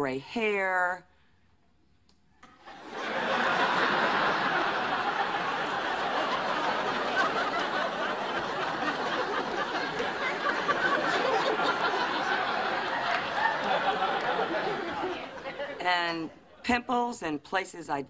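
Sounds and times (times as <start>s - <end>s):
audience laughing: 2.6s - 16.3s.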